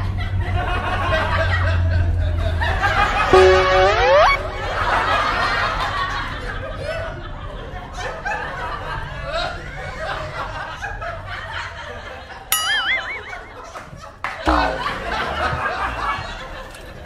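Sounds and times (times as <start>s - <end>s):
audience laughter: 0.0s - 3.3s, 14.5s - 17.0s
warbling whistle comic sound effect: 3.3s - 4.4s, 12.6s - 13.6s.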